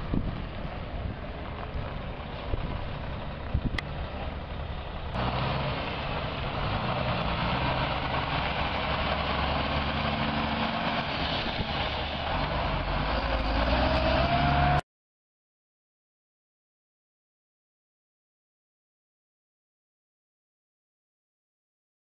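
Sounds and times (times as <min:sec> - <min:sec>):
truck diesel engine driving past: 0:00.0 - 0:14.8.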